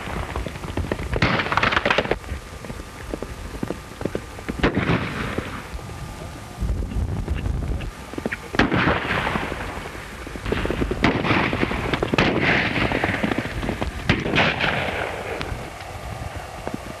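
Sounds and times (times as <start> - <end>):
horse hooves galloping: 0.0 - 17.0
gunshots: 1.1 - 2.2, 4.6 - 5.7, 8.5 - 15.8.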